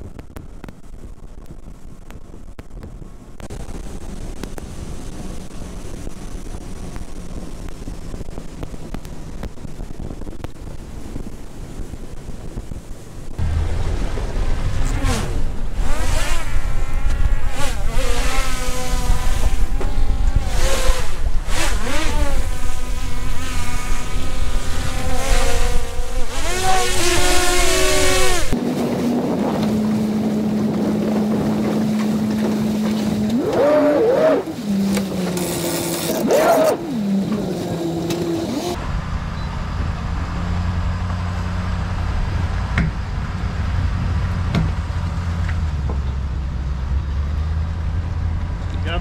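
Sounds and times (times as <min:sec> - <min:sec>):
wind noise: 0:00.0 - 0:48.7
road and wind rumble: 0:00.0 - 0:49.0
drone propeller whine: 0:03.4 - 0:49.0
engine idling and revving: 0:13.2 - 0:49.0.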